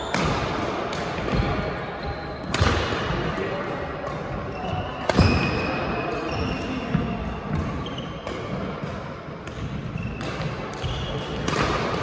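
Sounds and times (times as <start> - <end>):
racket hitting shuttlecock: 0.0 - 1.5, 2.4 - 3.2, 4.0 - 12.0
shoes squeaking on court: 4.4 - 8.6, 9.6 - 11.4.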